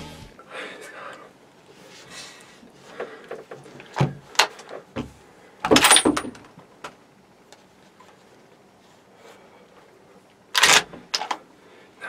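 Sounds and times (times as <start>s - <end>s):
knocking and handling noise: 2.9s - 7.0s.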